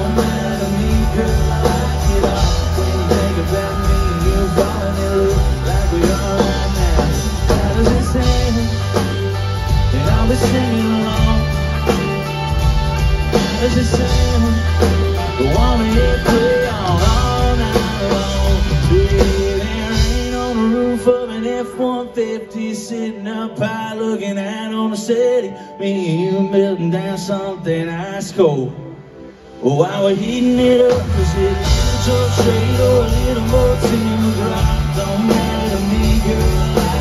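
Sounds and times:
bass guitar: 0:00.0 - 0:21.9, 0:30.3 - 0:37.0
drums: 0:00.0 - 0:22.5, 0:29.4 - 0:37.0.

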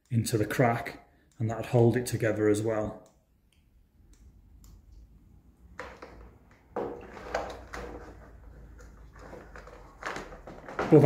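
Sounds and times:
plastic items rattling in hard case: 0:05.8 - 0:11.0.

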